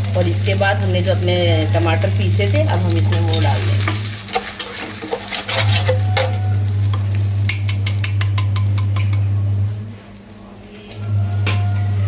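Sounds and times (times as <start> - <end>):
sauce sizzling in hot oil: 0.0 - 8.4
spatula clicking against pan: 7.4 - 9.2.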